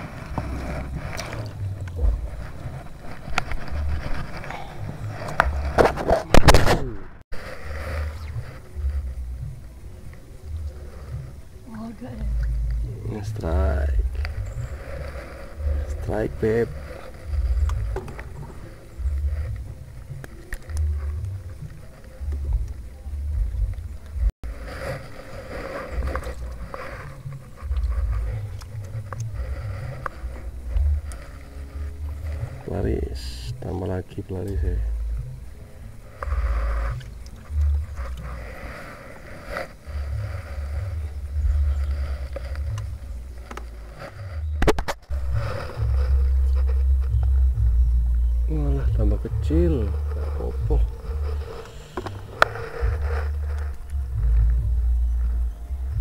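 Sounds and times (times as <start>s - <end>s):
low rumble: 0.0s - 33.7s, 34.4s - 56.0s
wind buffeting microphone: 0.0s - 56.0s
phone handling scrapes and knocks: 2.0s - 6.8s, 51.0s - 53.0s.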